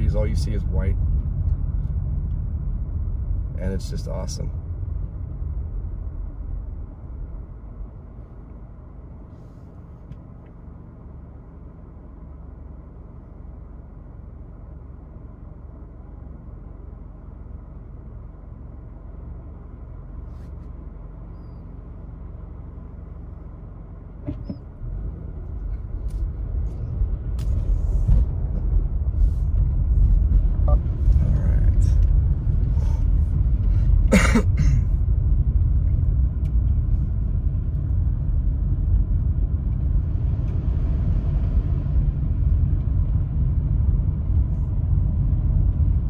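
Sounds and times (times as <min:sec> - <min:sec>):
car engine idling: 0:00.0 - 0:46.0.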